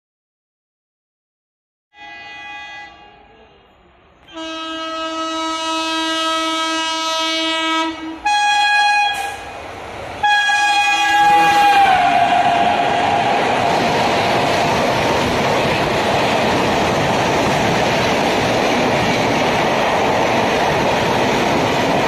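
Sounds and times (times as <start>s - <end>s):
train horn blasts: 1.9s - 3.7s, 4.3s - 9.5s, 10.2s - 12.8s
oncoming train rushing: 2.0s - 22.0s.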